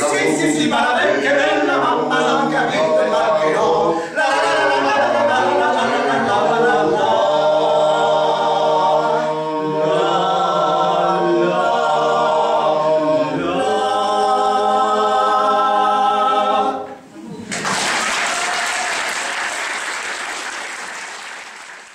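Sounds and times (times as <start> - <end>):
men singing a cappella harmony: 0.0 - 16.9.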